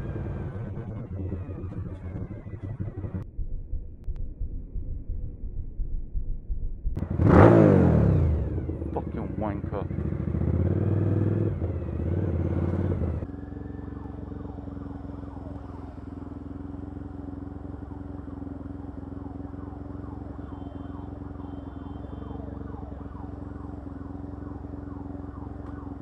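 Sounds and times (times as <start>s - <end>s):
traffic noise: 0.0s - 3.2s, 7.0s - 26.0s
motorcycle engine idling: 0.0s - 26.0s
motorcycle engine running: 0.0s - 26.0s
wind: 6.9s - 26.0s.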